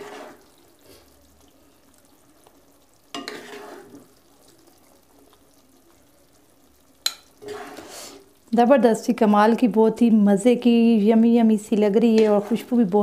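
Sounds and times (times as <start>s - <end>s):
spatula scraping a wok: 0.0s - 1.0s, 3.2s - 4.1s, 7.4s - 8.2s, 12.0s - 13.0s
hot pan sizzling: 0.0s - 13.0s.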